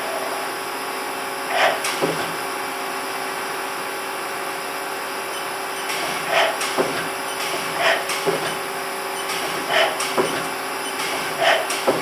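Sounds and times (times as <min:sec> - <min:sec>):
lathe machine hiss and hum: 0:00.0 - 0:12.0.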